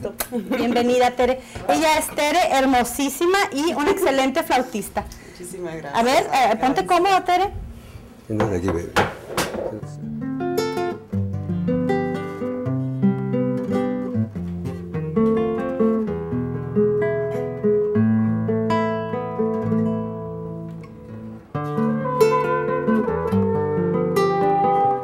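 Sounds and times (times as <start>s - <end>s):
acoustic guitar playing chords: 9.6s - 25.0s
held wavering high note: 21.6s - 25.0s.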